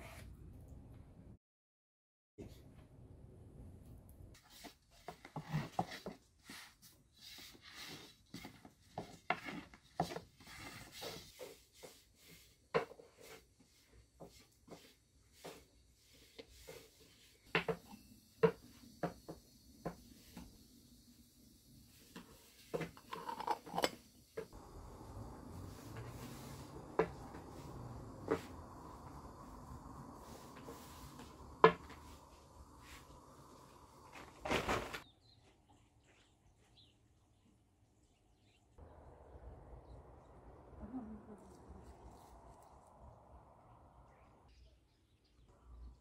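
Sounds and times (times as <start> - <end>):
dough rubbing on board: 4.5 - 17.5.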